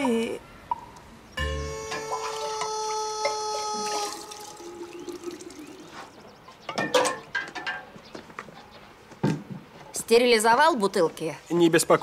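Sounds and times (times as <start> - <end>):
liquid pouring into glass jug: 3.8 - 6.0.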